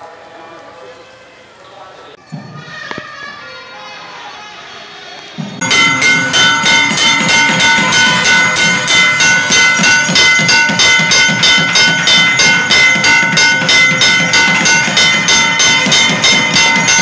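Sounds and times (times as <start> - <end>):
low pulsing beat: 5.6 - 17.0
rhythmic ringing metal percussion: 5.6 - 17.0
sustained ringing tones: 5.6 - 17.0.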